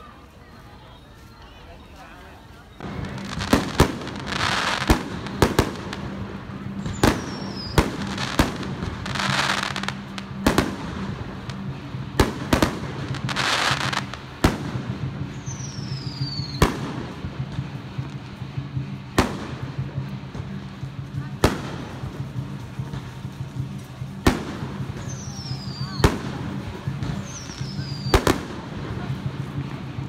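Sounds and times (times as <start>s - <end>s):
firework crackling: 0.0s - 30.0s
firework bangs: 2.8s - 18.0s
falling firework whistles: 6.8s - 8.2s, 15.3s - 16.8s, 27.1s - 28.3s.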